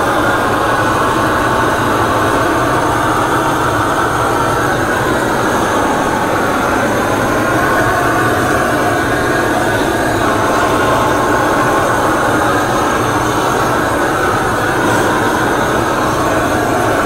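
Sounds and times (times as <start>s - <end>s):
gas torch flame rushing: 0.0s - 17.0s.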